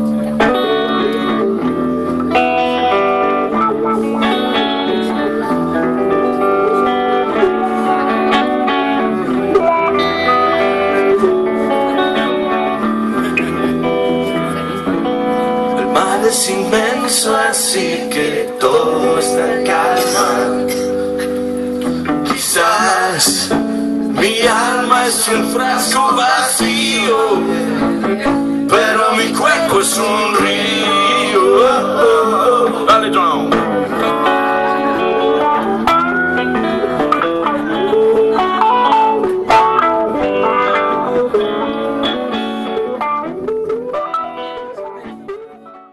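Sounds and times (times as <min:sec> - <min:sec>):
guitar accompaniment: 0:00.0 - 0:45.9
live band music: 0:00.0 - 0:45.9
man singing: 0:15.8 - 0:21.2, 0:22.2 - 0:35.6.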